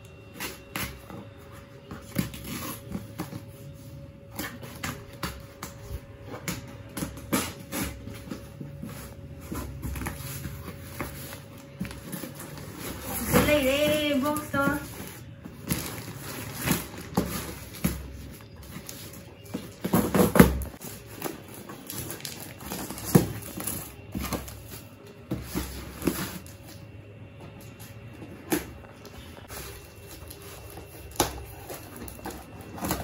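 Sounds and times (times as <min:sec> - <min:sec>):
cardboard boxes rustling: 0:00.0 - 0:33.0.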